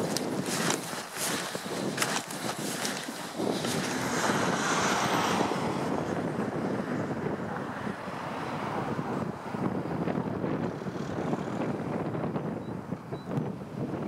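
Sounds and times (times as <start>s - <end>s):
footsteps crunching through snow: 0.0s - 5.1s
steady rushing noise: 0.0s - 12.4s.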